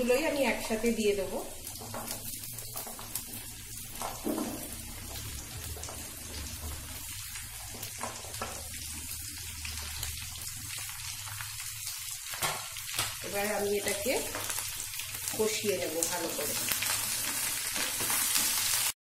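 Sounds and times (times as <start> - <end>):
hot oil sizzling: 0.0 - 19.0
vegetables dropping into pan: 12.3 - 13.2.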